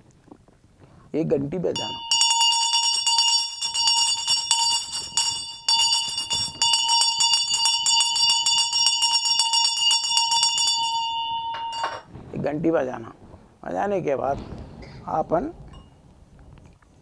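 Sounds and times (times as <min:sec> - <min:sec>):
hand bell ringing rapidly: 0:01.8 - 0:12.1.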